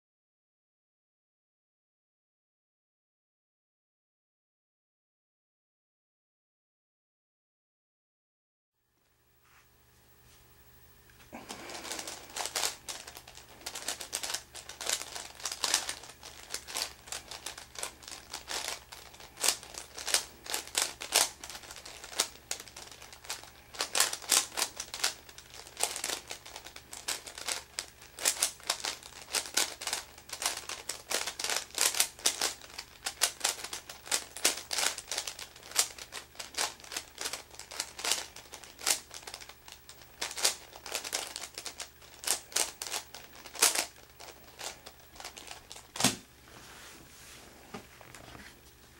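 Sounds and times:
puzzle cube plastic clicks: 11.8 - 46.1.

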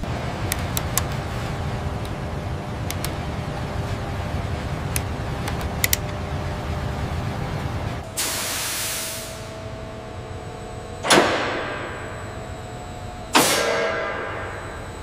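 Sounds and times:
low machine hum: 0.0 - 15.0
faint high whine: 7.4 - 15.0.

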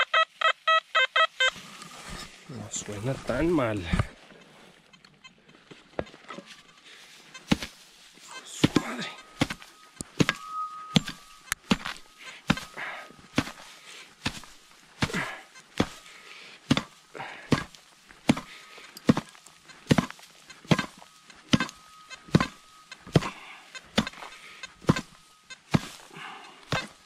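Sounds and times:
digging tool striking soil: 7.4 - 7.8, 8.4 - 27.0.

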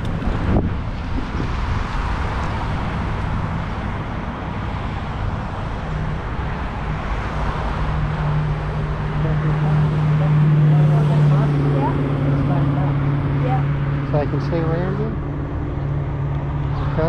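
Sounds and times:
wind noise on microphone: 0.0 - 13.8
road traffic: 0.0 - 17.0
vehicle engine drone: 0.0 - 17.0.

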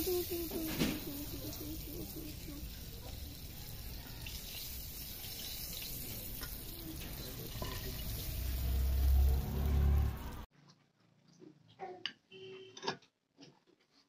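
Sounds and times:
hot oil sizzling in a wok: 0.0 - 10.5.

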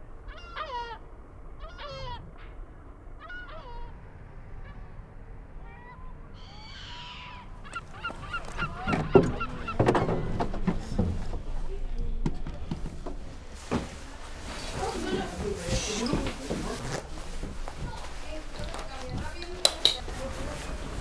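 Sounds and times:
birds honking: 0.0 - 11.6.

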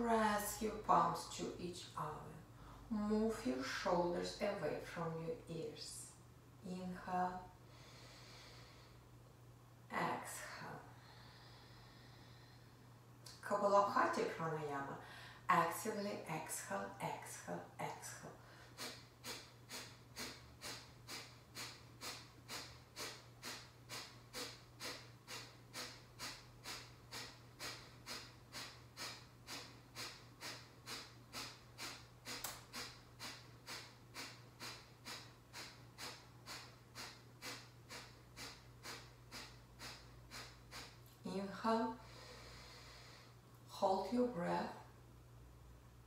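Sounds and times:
forceful nasal exhalations: 18.6 - 41.2, 42.0 - 43.4.

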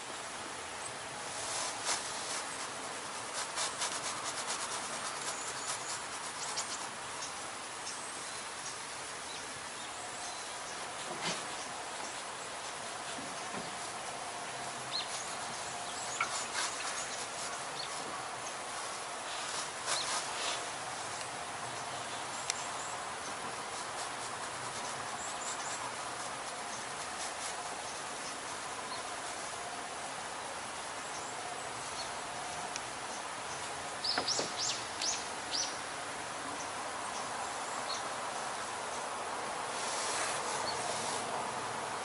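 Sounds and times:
outdoor hiss: 0.0 - 42.0
bird chirping: 14.9 - 18.7, 33.1 - 35.8.

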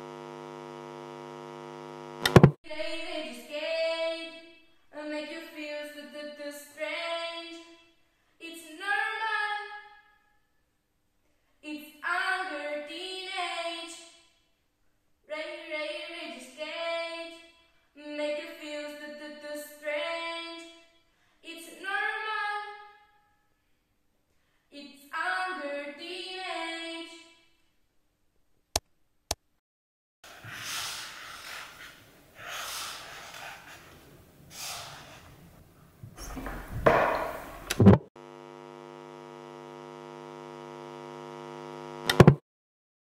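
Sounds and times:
electrical buzzing hum: 0.0 - 2.6, 36.2 - 42.4
hissing scratchy strokes: 30.3 - 35.3.

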